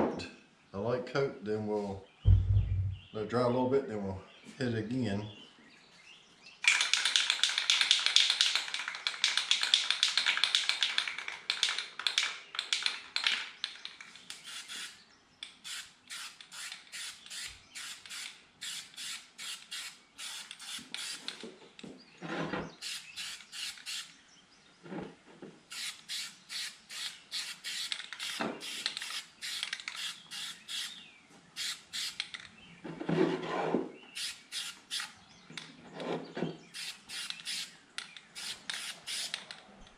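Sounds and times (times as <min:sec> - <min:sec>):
spray can clicking and shaken: 0:06.6 - 0:14.9, 0:25.7 - 0:30.8, 0:36.8 - 0:39.6
spray can hissing: 0:25.7 - 0:30.9, 0:31.6 - 0:32.2.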